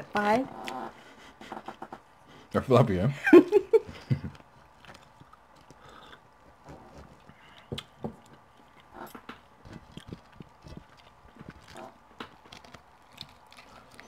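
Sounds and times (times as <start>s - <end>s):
chewing and mouth noises: 4.0s - 14.0s.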